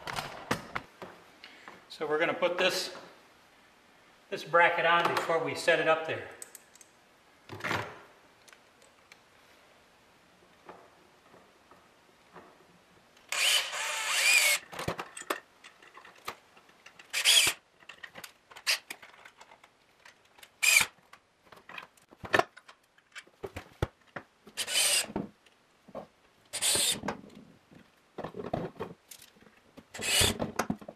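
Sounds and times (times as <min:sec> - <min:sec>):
electric drill running: 0:13.3 - 0:14.6, 0:17.1 - 0:17.6, 0:24.6 - 0:25.1, 0:26.6 - 0:27.0, 0:30.0 - 0:30.4.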